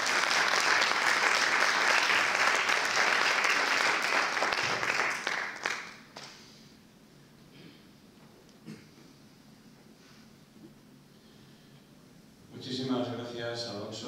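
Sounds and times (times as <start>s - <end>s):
audience clapping: 0.0s - 6.4s.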